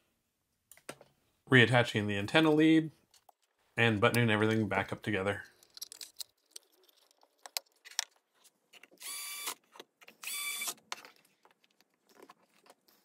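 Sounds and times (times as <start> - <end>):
small electric motor whirring: 9.0 - 9.6, 10.2 - 10.8.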